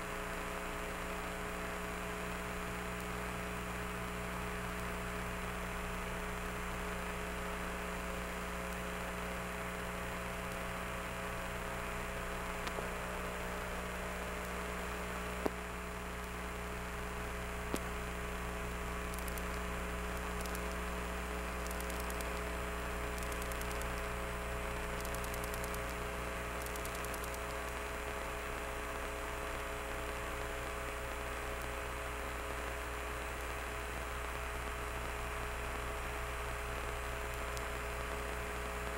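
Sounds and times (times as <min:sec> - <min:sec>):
electrical hum with hiss: 0:00.0 - 0:38.9
faint clicks: 0:12.6 - 0:13.0, 0:19.1 - 0:20.9, 0:21.5 - 0:24.2, 0:24.8 - 0:27.9, 0:37.2 - 0:38.9.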